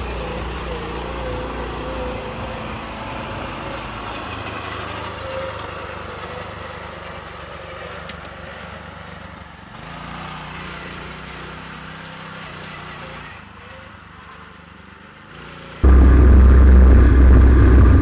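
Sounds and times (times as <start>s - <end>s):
small engine running: 0.0s - 18.0s.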